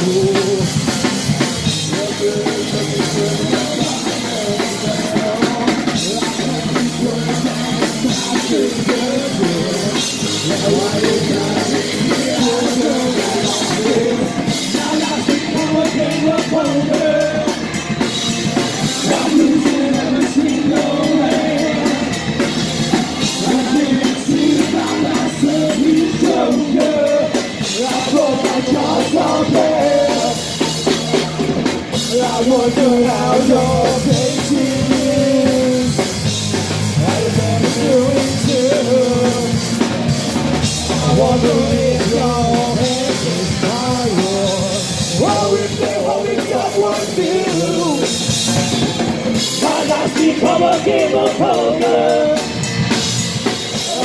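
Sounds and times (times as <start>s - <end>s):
shouted sung vocals: 0.0s - 0.7s, 1.8s - 18.0s, 18.8s - 36.2s, 37.0s - 39.8s, 40.6s - 48.3s, 49.4s - 52.7s, 53.7s - 54.0s
drum kit pounding: 0.0s - 54.0s
rock band playing live: 0.0s - 54.0s.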